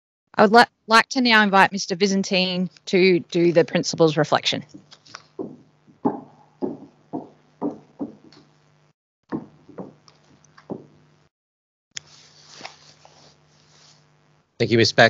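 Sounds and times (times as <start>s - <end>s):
footsteps on stage floor: 4.8s - 8.5s, 9.3s - 11.0s
soft rustle: 12.0s - 14.2s.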